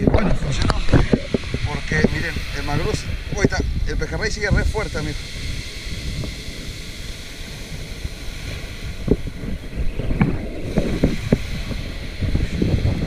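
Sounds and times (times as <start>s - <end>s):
wind buffeting microphone: 0.0s - 13.0s
small waves breaking on pebbles: 4.2s - 13.0s.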